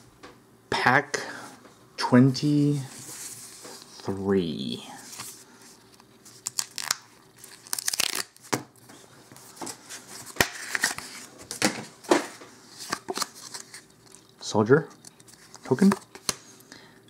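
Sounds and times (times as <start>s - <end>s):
foil wrapper tearing: 6.3s - 8.5s.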